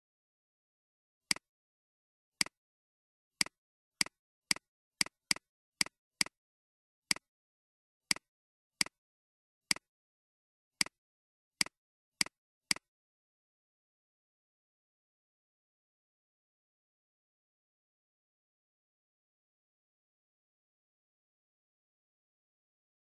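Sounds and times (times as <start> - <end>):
computer mouse clicking: 8.1 - 9.0, 11.6 - 12.9.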